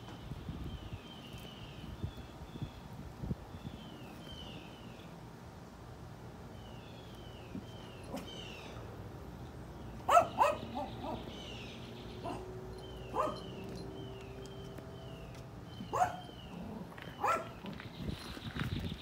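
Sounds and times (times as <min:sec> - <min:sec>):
small dog yipping: 0:10.1 - 0:11.2, 0:13.1 - 0:13.8, 0:15.8 - 0:16.3, 0:17.2 - 0:17.6.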